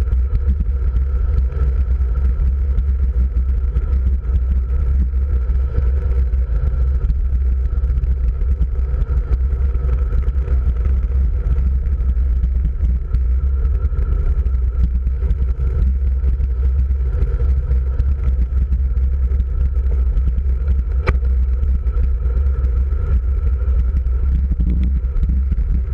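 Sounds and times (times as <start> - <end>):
wind over microphone: 0.0 - 25.9
sharp click: 21.0 - 21.2.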